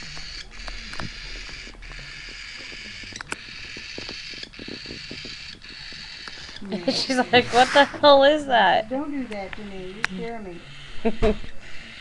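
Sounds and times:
steady hiss: 6.9s - 8.6s.

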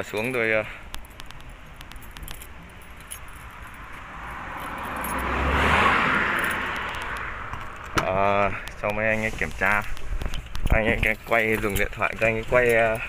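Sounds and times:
handling clicks and rattles: 0.0s - 5.2s, 6.3s - 13.0s
vehicle passing on road: 0.3s - 10.7s.

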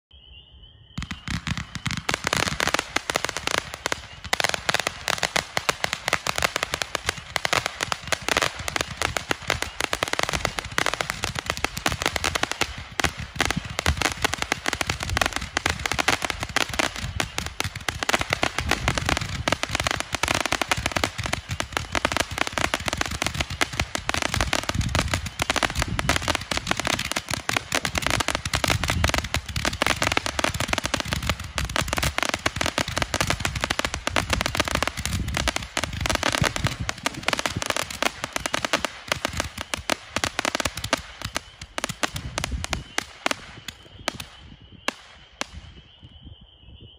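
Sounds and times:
firework crackling and popping: 1.0s - 46.3s.

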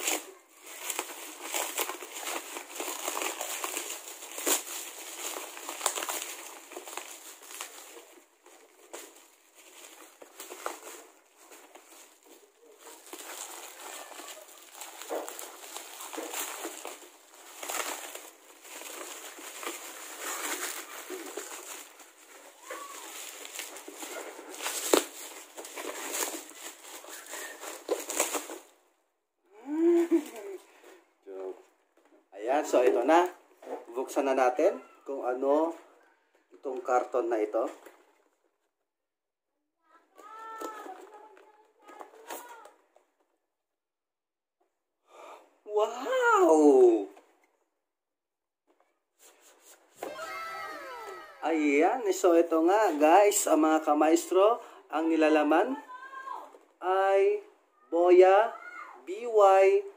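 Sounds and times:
bubble wrap crinkling and cracking: 0.0s - 28.8s, 29.8s - 31.4s, 40.0s - 43.0s, 49.2s - 56.7s.

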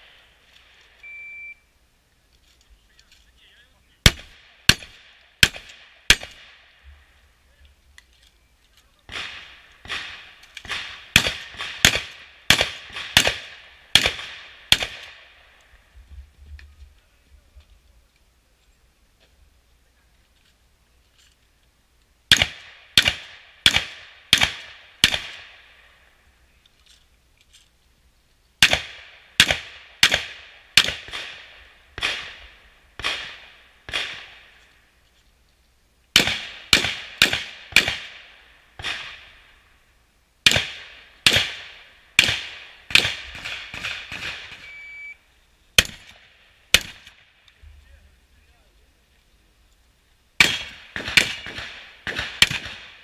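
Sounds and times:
shotgun shots with echo: 4.0s - 6.6s, 9.1s - 15.3s, 22.3s - 25.7s, 28.6s - 34.6s, 36.2s - 39.4s, 40.4s - 44.7s, 45.8s - 47.2s, 50.4s - 53.0s.

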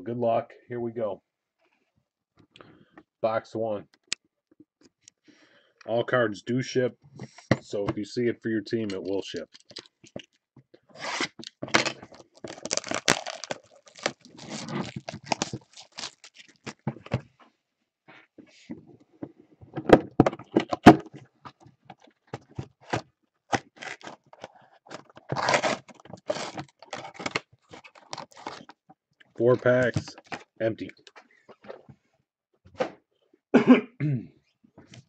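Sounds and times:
plastic wrap and cardboard crinkling: 9.2s - 10.3s, 11.0s - 17.2s, 23.5s - 28.8s.

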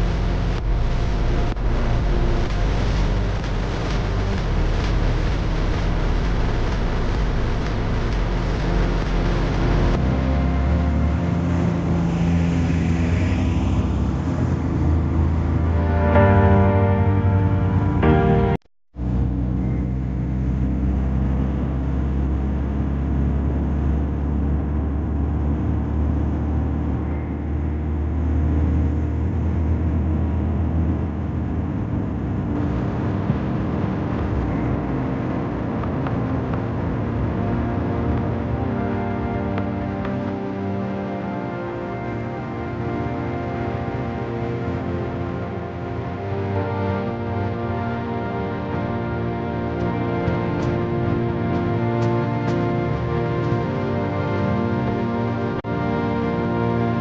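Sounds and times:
vehicle engine rumble: 0.0s - 16.3s, 19.0s - 57.0s
road noise: 0.0s - 57.0s.

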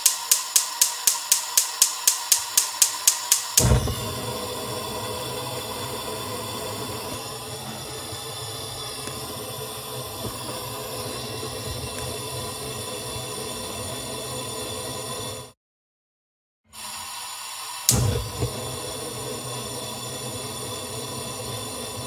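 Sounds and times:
stove spark igniter ticking: 0.0s - 12.0s, 17.6s - 20.7s
gas flame hissing: 0.0s - 15.6s, 16.7s - 22.0s.

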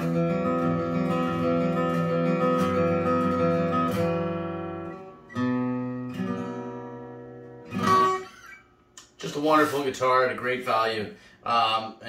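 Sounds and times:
acoustic guitar strummed chords: 0.0s - 8.8s.

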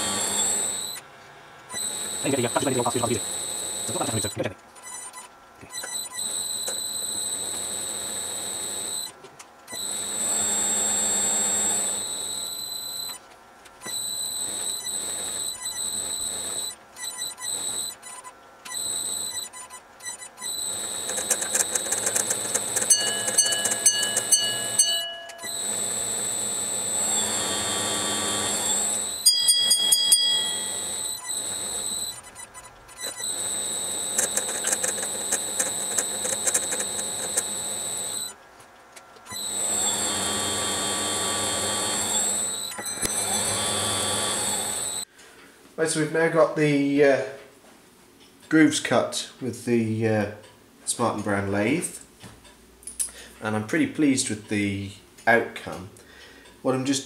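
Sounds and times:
lathe cutting brass whine: 0.0s - 1.0s, 1.7s - 4.5s, 9.8s - 13.2s, 20.4s - 38.4s, 39.3s - 45.1s.

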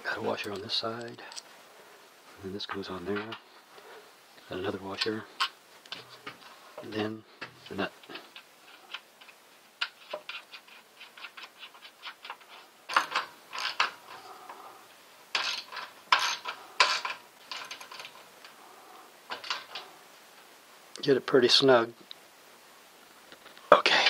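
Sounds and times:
metallic clanks and scrapes: 15.4s - 18.3s.

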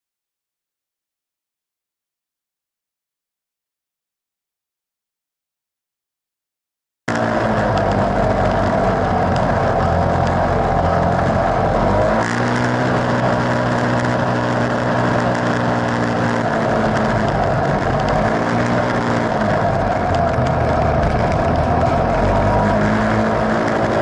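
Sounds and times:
vehicle engine droning: 7.1s - 24.0s.

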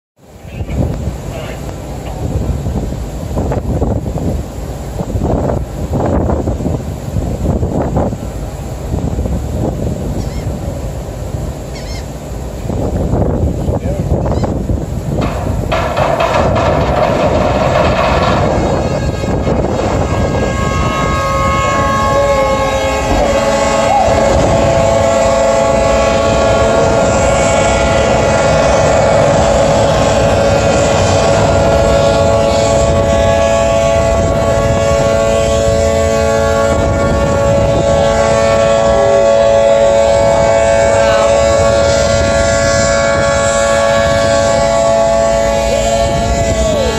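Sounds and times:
low rumble and water wash: 0.2s - 46.9s
wind buffeting the microphone: 0.4s - 46.9s
horns blowing long blasts: 12.6s - 46.9s.

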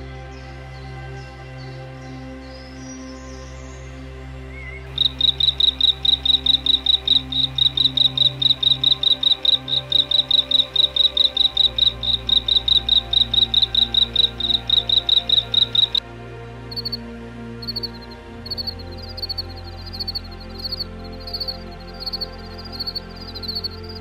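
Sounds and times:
soft background music: 0.0s - 24.0s
small animal chirping rapidly: 4.9s - 16.0s.

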